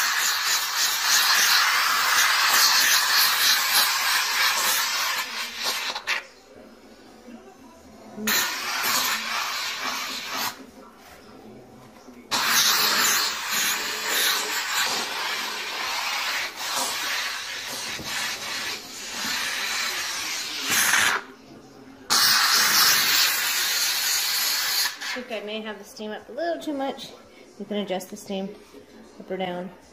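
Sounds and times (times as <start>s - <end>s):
steam cleaner hissing: 0.0s - 6.2s, 8.2s - 10.6s, 12.3s - 21.2s, 22.1s - 25.2s.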